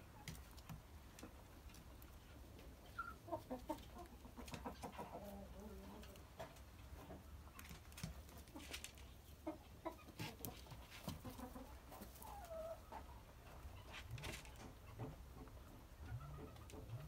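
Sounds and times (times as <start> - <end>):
rabbit rustling in hay: 10.1 - 14.6.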